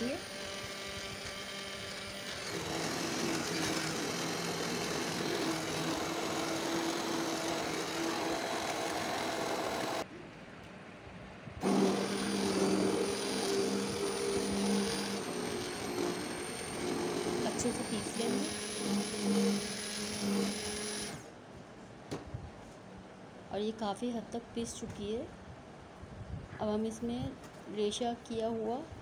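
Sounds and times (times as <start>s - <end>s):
hand blender motor hum: 0.0s - 10.0s, 11.6s - 21.2s.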